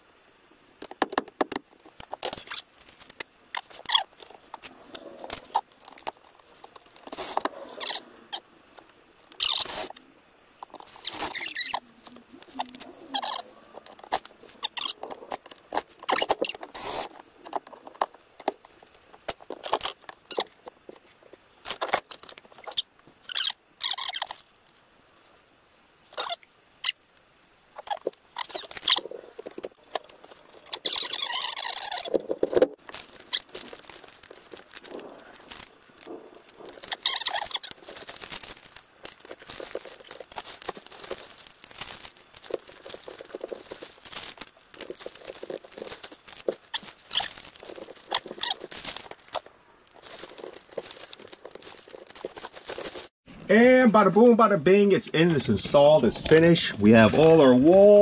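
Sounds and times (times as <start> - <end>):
plastic clicks and knocks: 0.8 - 2.3
plastic rustling: 0.8 - 25.4, 26.1 - 53.2.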